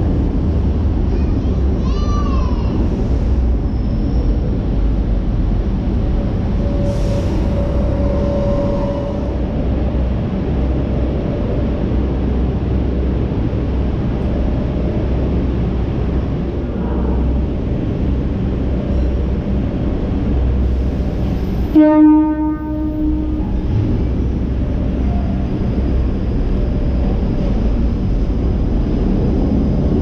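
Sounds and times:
train wheels and motors rumbling: 0:00.0 - 0:30.0
train horn: 0:06.6 - 0:09.4, 0:21.7 - 0:23.6.

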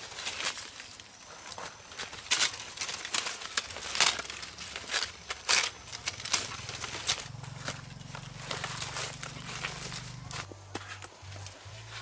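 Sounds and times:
leaves rustling: 0:00.0 - 0:12.0
twigs snapping: 0:00.0 - 0:12.0.

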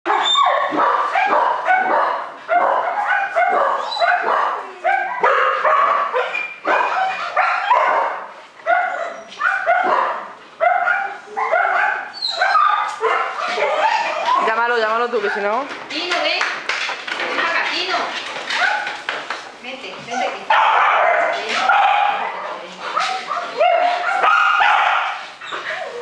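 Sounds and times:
puppy barking and yapping: 0:00.1 - 0:14.6, 0:18.5 - 0:19.1, 0:20.5 - 0:26.0.

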